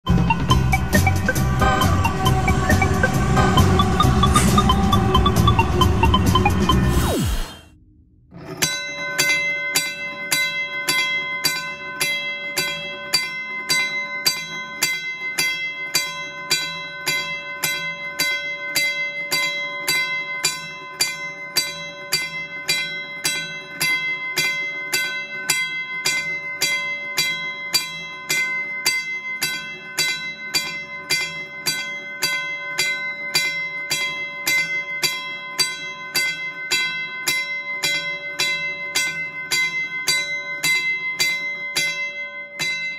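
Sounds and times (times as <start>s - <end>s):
crossing bell clanging: 0.3s - 6.8s.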